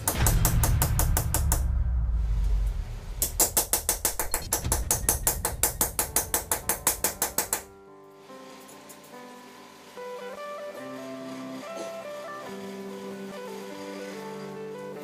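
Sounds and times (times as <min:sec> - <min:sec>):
fast percussive beat: 0:03.2 - 0:07.7.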